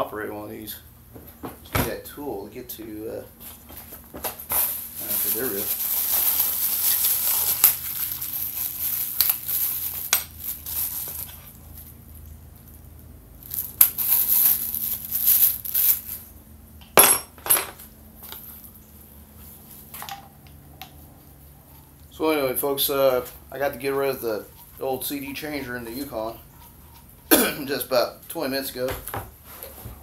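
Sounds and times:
crinkling and rustling: 0:03.4 - 0:16.3.

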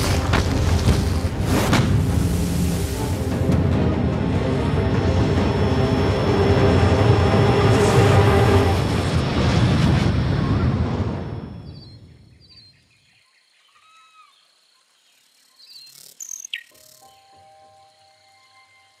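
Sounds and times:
deep rumbling noise: 0:00.0 - 0:12.2
faint bird-like chirps: 0:11.6 - 0:19.0.

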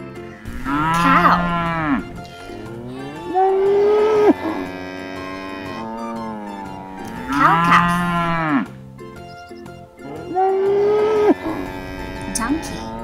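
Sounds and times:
cattle mooing: 0:00.3 - 0:08.8, 0:10.0 - 0:13.0.

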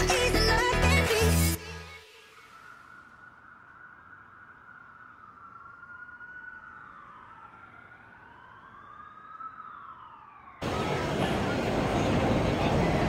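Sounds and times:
faint siren wailing: 0:01.6 - 0:13.0
loud city street noise: 0:10.6 - 0:13.0.

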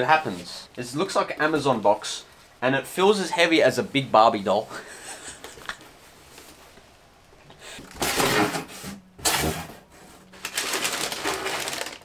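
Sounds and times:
packaging rustling and scraping: 0:07.8 - 0:12.0.

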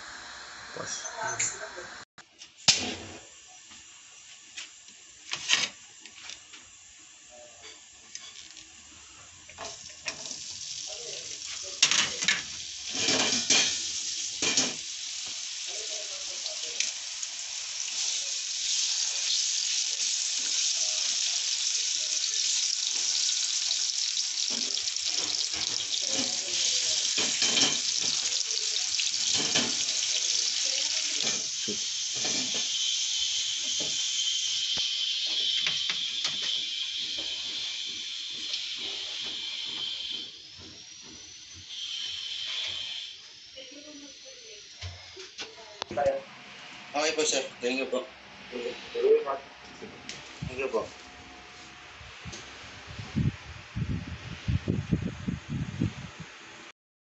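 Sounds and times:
fries sizzling in hot oil: 0:00.0 - 0:02.0, 0:02.6 - 0:49.2.

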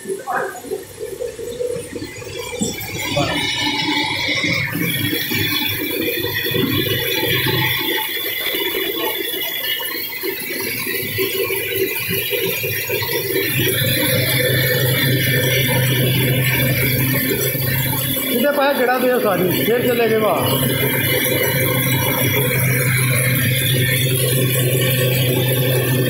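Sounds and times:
steady low hum: 0:12.6 - 0:26.0.

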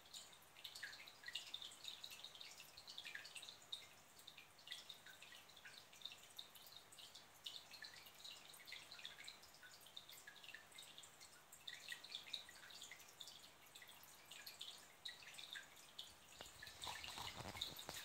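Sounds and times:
water trickling and dripping: 0:00.0 - 0:18.0
camera handling rumble: 0:16.4 - 0:18.0.

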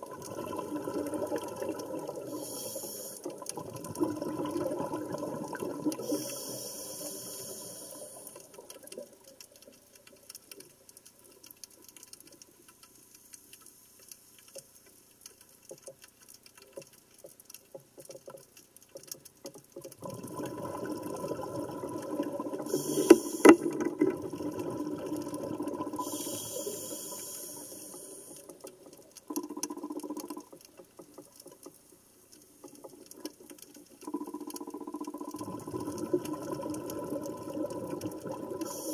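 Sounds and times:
air bubbles rushing through water: 0:00.0 - 0:09.6, 0:19.9 - 0:30.6, 0:33.0 - 0:38.9
faint underwater crackling clicks: 0:00.0 - 0:38.9.

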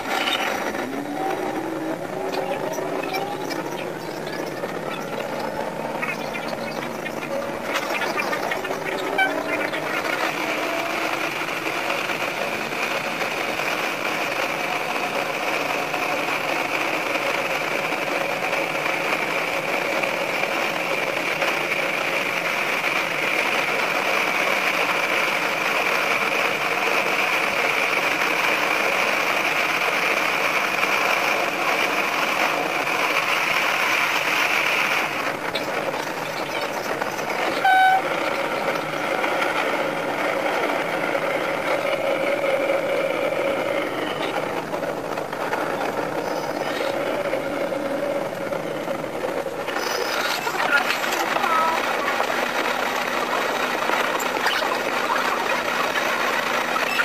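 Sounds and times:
train running through tunnel: 0:00.0 - 0:57.0
train horn blast: 0:37.6 - 0:38.3.

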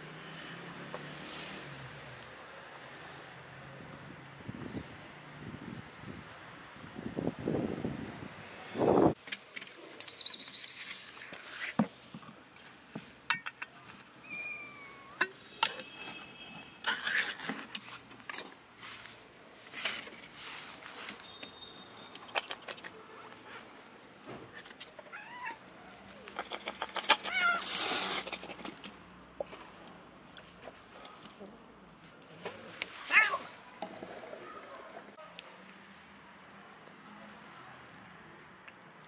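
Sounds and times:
metal tin being handled: 0:13.0 - 0:14.0
kittens mewing: 0:14.2 - 0:15.2, 0:25.0 - 0:28.8.

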